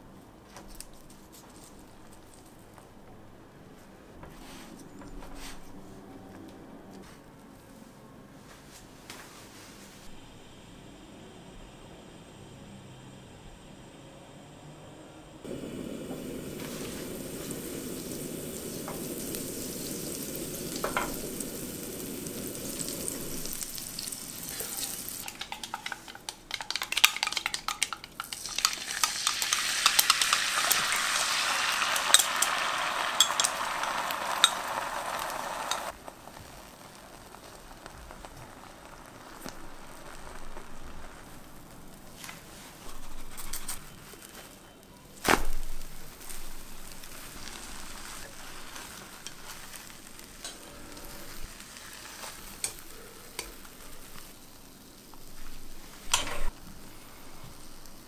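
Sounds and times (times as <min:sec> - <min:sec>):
egg pouring and sizzling: 0:00.8 - 0:02.8, 0:15.4 - 0:44.6, 0:45.3 - 0:58.0
butter sizzling in frying pan: 0:15.5 - 0:44.0, 0:45.4 - 0:58.0.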